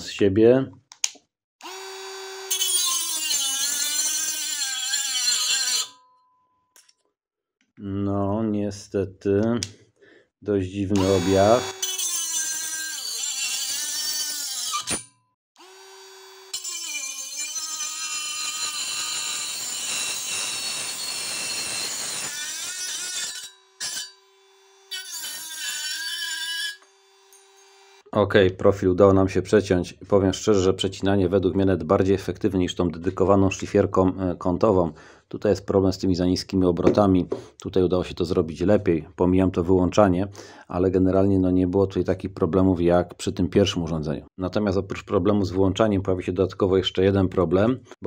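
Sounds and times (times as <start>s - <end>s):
rotary tool motor: 1.6s - 5.8s, 11.0s - 15.0s, 15.6s - 22.3s, 26.7s - 28.0s
cutting disc grinding metal tube: 1.6s - 6.0s, 11.0s - 28.1s.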